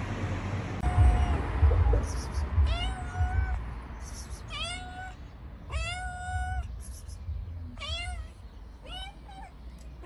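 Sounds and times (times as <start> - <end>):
cat meowing: 0.8 - 3.6, 4.2 - 7.1, 7.7 - 9.9.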